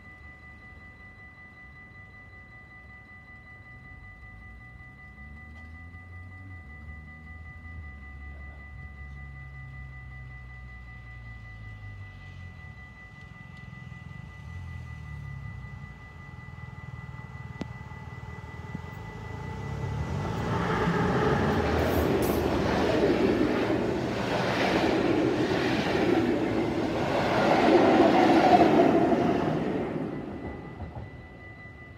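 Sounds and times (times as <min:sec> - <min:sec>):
train wheels on rails: 0:13.1 - 0:31.9.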